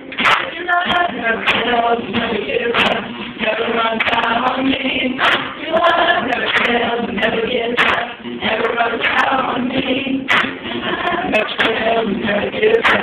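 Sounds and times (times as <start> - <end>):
acoustic guitar strumming: 0.0 - 13.0
group singing worship song: 0.2 - 13.0
person singing into microphone: 0.5 - 13.0.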